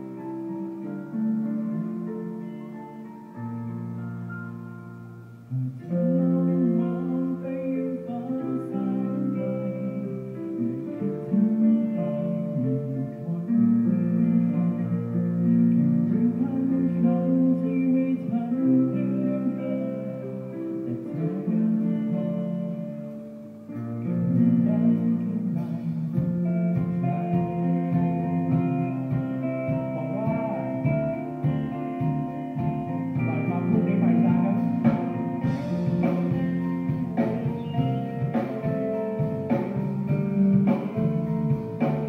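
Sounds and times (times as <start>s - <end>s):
bass: 0.0s - 42.0s
electric guitars: 0.0s - 42.0s
keyboard: 0.0s - 42.0s
drums: 23.7s - 42.0s.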